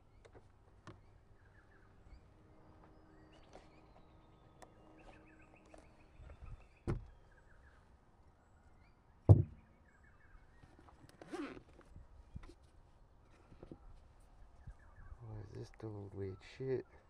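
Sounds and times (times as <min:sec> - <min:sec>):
faint bird chirps: 0:00.0 - 0:10.8, 0:13.3 - 0:17.0
sharp knocks: 0:09.3 - 0:09.6.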